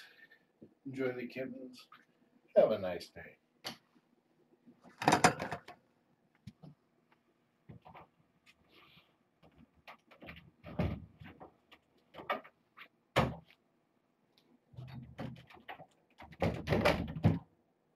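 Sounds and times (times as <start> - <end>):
irregular knocks and thumps: 9.4 - 12.6, 14.8 - 17.5.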